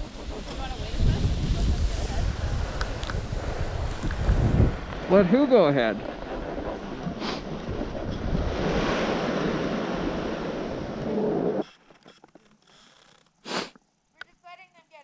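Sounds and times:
wind buffeting microphone: 0:00.0 - 0:11.6
faint clicks: 0:11.0 - 0:14.4.

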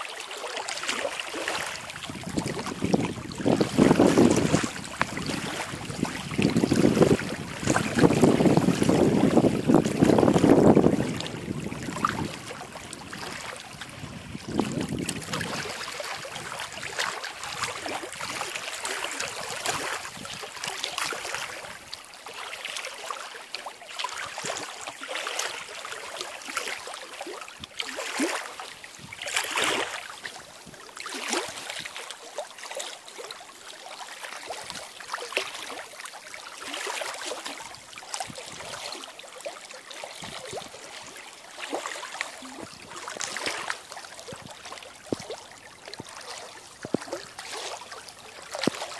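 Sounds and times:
lake waves lapping: 0:00.0 - 0:48.9
wind buffeting microphone: 0:01.7 - 0:18.4.

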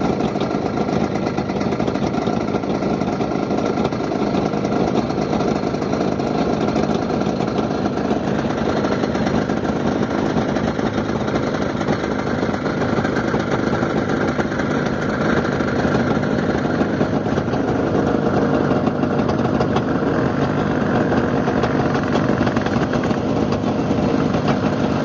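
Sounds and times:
snowmobile engine running: 0:00.0 - 0:25.0.

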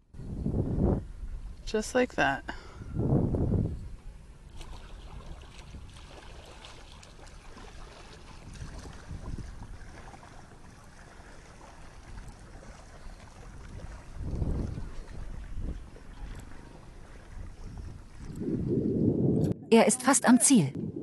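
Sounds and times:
wind buffeting microphone: 0:00.1 - 0:19.7, 0:20.6 - 0:21.0
waves lapping against hull: 0:01.2 - 0:19.1.

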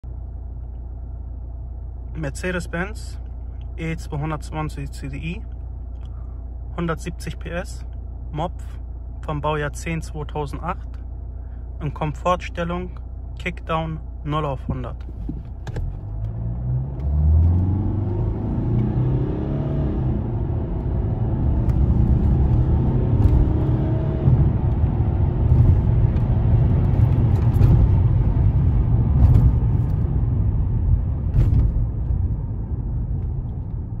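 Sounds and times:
diesel engine accelerating: 0:14.8 - 0:34.0.

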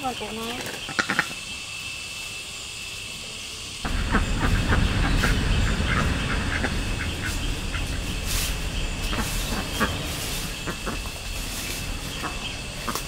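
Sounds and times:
wind rumble on microphone: 0:03.8 - 0:13.0
footsteps crunching dry leaves: 0:07.2 - 0:13.0.

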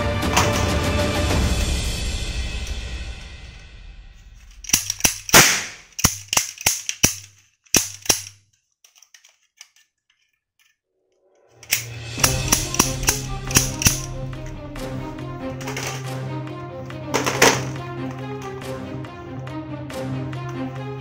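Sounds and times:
background music: 0:00.0 - 0:05.7, 0:11.5 - 0:21.0
toy gun shots: 0:04.7 - 0:08.4, 0:11.7 - 0:14.1.

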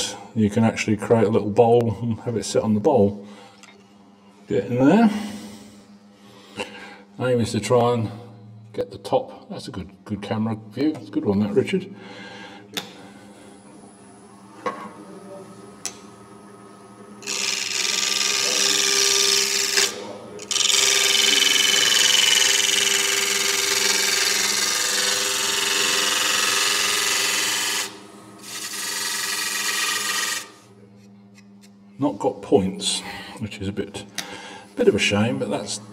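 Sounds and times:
wood lathe humming: 0:17.1 - 0:30.7
gouge cutting spinning wood: 0:17.2 - 0:30.6.

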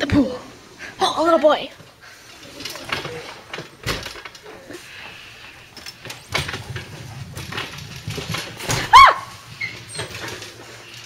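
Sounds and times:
cart rolling rumble: 0:02.0 - 0:11.0
metal luggage cart rattling: 0:05.8 - 0:11.0.

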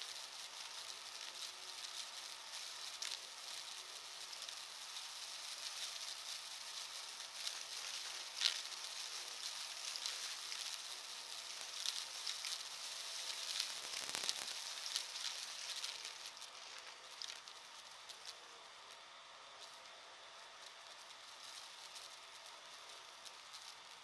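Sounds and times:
sharp crack: 0:11.6 - 0:17.5.

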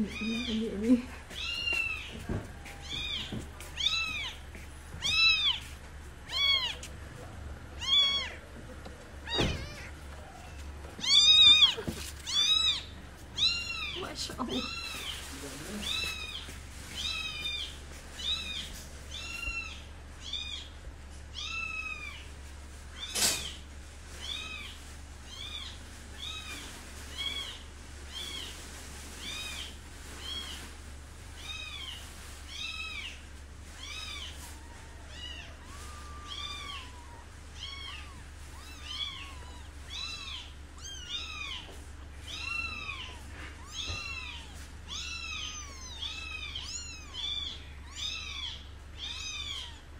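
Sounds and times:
kitten mewing: 0:06.3 - 0:06.9, 0:09.2 - 0:14.0.

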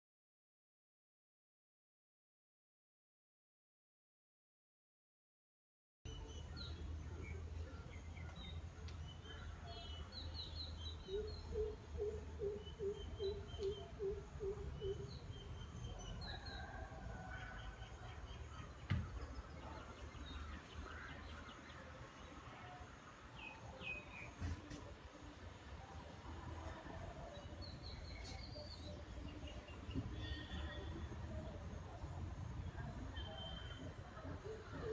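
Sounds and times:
birds chirping and calling: 0:07.8 - 0:16.2.

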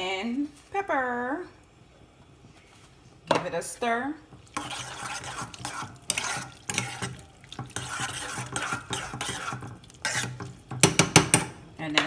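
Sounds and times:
spoon stirring wet food: 0:04.2 - 0:11.5.

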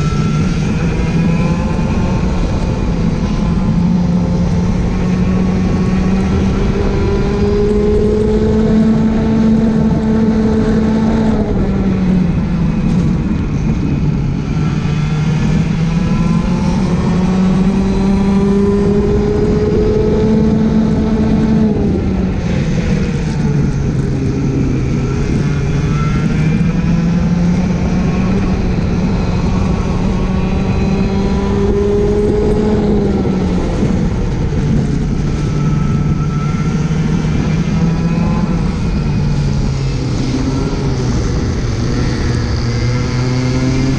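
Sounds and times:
kart engine racing: 0:00.0 - 0:43.9.

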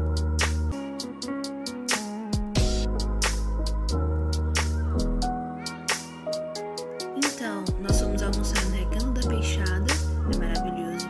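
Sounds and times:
deep bass: 0:00.0 - 0:00.8, 0:02.4 - 0:05.4, 0:07.9 - 0:10.7
background music with beat: 0:00.0 - 0:11.0.

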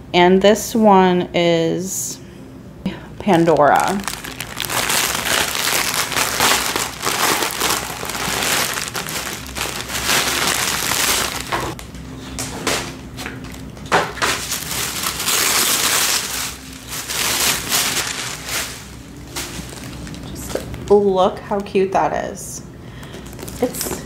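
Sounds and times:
plastic bag crinkling: 0:03.2 - 0:11.9, 0:13.4 - 0:21.1, 0:23.1 - 0:24.0.

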